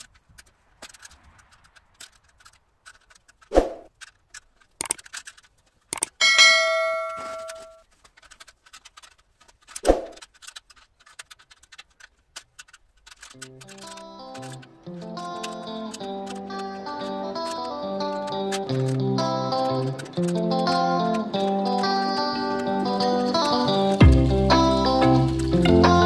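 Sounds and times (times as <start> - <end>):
small metallic clicks and taps: 0.0 - 25.7
loud ringing metal clang: 6.2 - 7.8.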